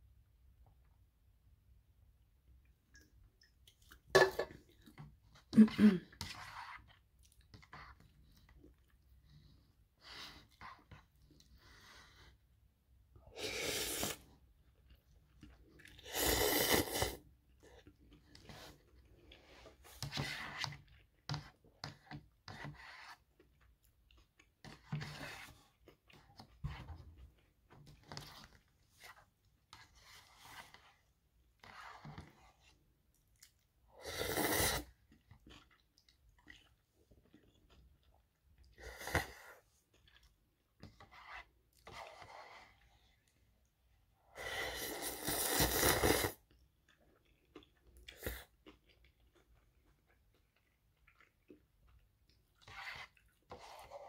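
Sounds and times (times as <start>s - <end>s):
slurping noodles: 13.3s - 21.6s, 33.9s - 35.8s, 44.2s - 46.6s
chewing and mouth noises: 34.9s - 40.8s, 46.1s - 53.5s.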